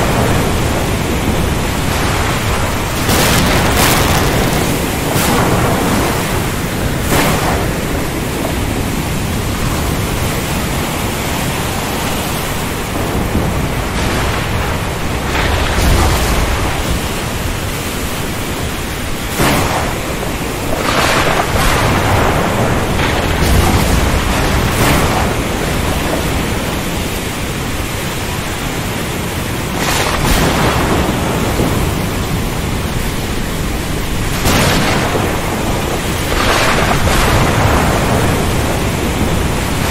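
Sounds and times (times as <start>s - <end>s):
low rolling thunder: 0.0s - 11.4s, 12.6s - 39.9s
heavy rain pouring: 0.0s - 39.9s
sharp thunder cracks: 0.1s - 9.8s, 19.3s - 26.9s, 29.7s - 32.5s, 34.3s - 39.9s.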